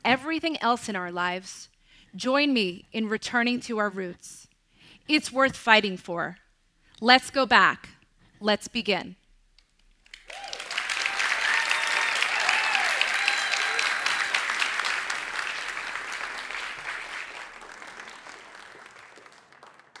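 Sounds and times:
audience applauding: 10.0s - 20.0s.

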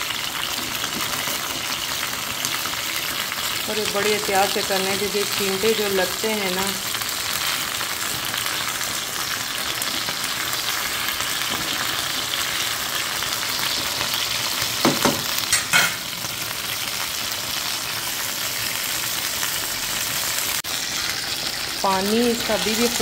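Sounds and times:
chicken sizzling in hot oil: 0.0s - 23.0s.

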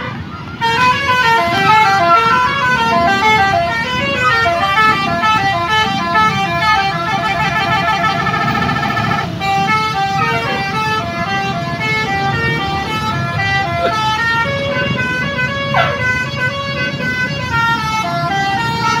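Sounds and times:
engine and traffic rumble: 0.0s - 19.0s
musical horn playing a tune: 0.6s - 19.0s.

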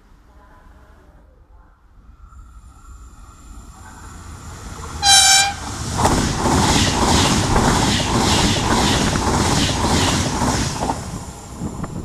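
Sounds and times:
train passing at speed: 1.9s - 12.0s
train horn blast: 5.0s - 5.7s.

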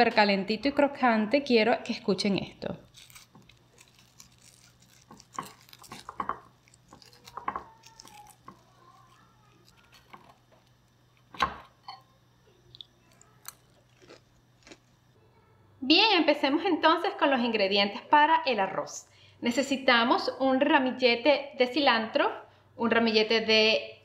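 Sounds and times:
crispy batter crunching: 2.6s - 11.4s, 12.7s - 15.2s.

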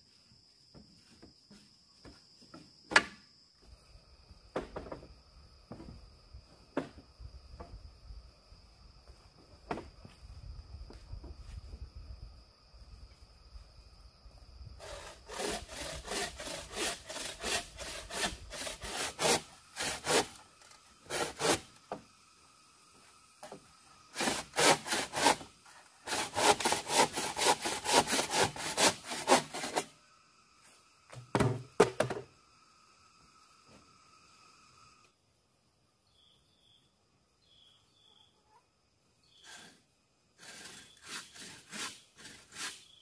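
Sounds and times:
knocks: 4.5s - 5.1s, 31.1s - 32.3s
bow saw cutting bamboo: 14.8s - 22.0s, 23.4s - 29.9s, 39.4s - 39.8s, 40.4s - 43.0s.

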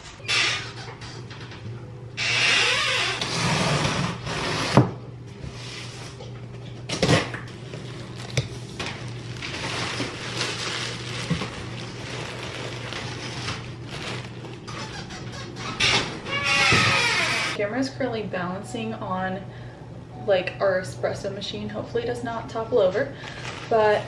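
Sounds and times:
plastic and cardboard crinkling: 7.0s - 17.2s.

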